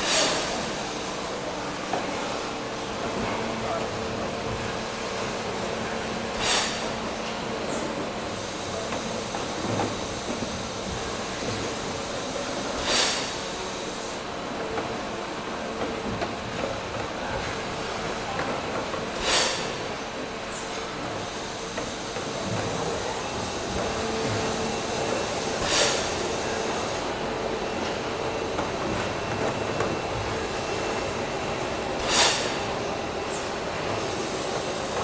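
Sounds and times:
compressed air hiss: 0:00.0 - 0:01.3, 0:06.3 - 0:07.2, 0:09.9 - 0:14.2, 0:19.2 - 0:20.0, 0:21.1 - 0:27.2, 0:32.0 - 0:35.0
machine running steadily: 0:00.0 - 0:35.0.

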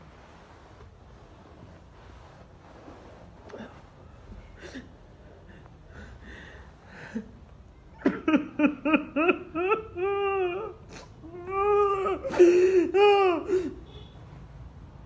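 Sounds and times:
woman sobbing and wailing: 0:08.0 - 0:13.8.

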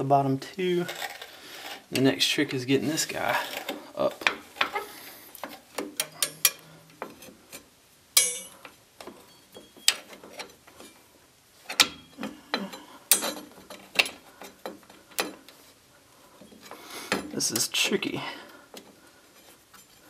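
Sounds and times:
metal brake parts clinking: 0:06.0 - 0:06.6, 0:08.2 - 0:11.0, 0:11.7 - 0:15.4.

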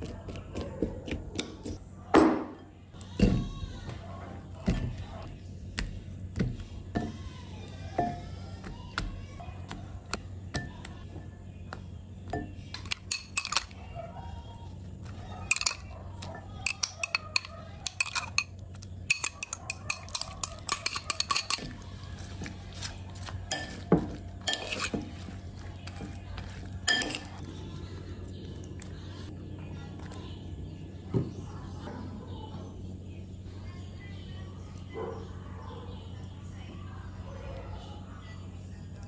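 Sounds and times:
metal spoon clinking on ceramic bowl: 0:12.3 - 0:13.8, 0:15.5 - 0:21.8, 0:23.5 - 0:25.1, 0:26.8 - 0:27.4.

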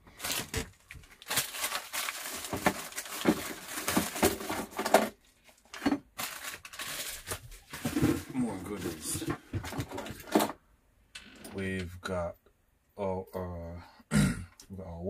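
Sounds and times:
packaging crinkling: 0:00.1 - 0:08.4.

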